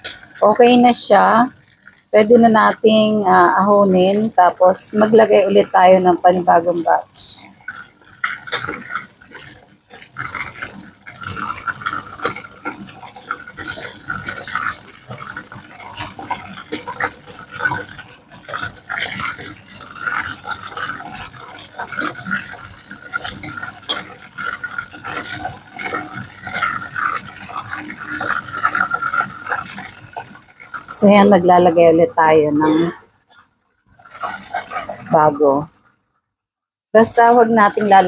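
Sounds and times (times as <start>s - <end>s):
oil bubbling and crackling: 0.0s - 36.4s, 37.0s - 38.0s.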